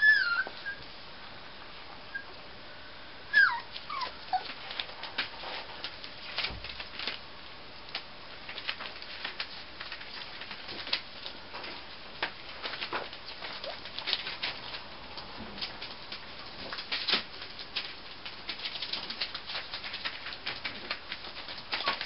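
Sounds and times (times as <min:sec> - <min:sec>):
puppy whimpering: 0:00.0 - 0:00.8, 0:02.1 - 0:02.3, 0:03.3 - 0:04.6
paws tapping on newspaper: 0:03.4 - 0:22.0.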